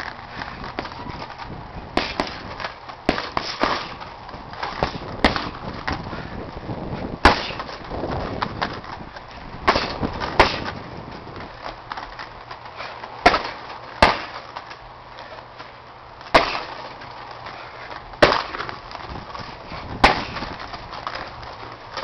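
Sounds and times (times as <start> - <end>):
punches and kicks thudding on punching bag: 1.9 - 4.0, 4.6 - 6.0, 7.0 - 8.8, 9.6 - 10.9, 13.2 - 14.4, 16.3 - 16.8, 18.2 - 18.8, 19.7 - 20.6.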